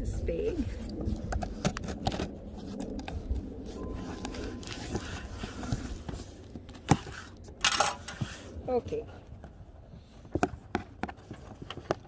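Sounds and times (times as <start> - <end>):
steady low rumble: 0.0 - 10.3
scrapes and taps on cardboard: 10.3 - 12.0.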